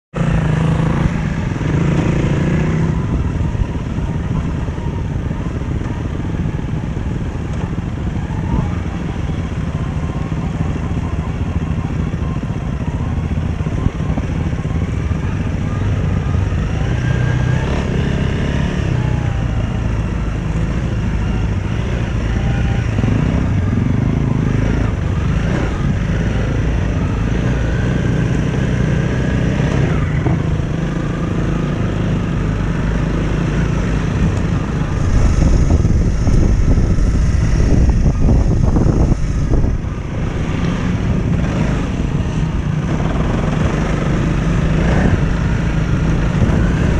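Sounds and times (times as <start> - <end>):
motorcycle engine revving: 0.1 - 46.9
wind noise on microphone: 0.2 - 46.9.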